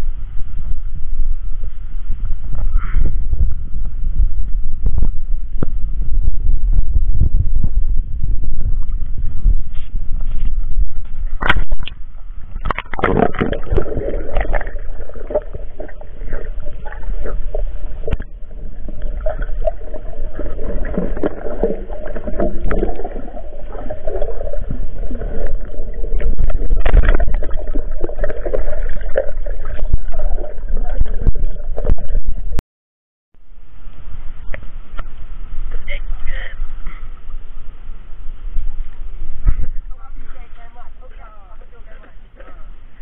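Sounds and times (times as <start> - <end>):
muffled underwater gurgling: 0.0 - 32.6.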